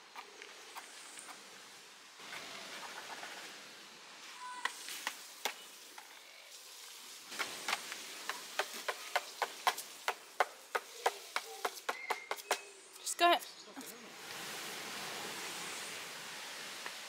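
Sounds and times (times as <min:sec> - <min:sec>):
faint steady hiss: 0:00.0 - 0:17.0.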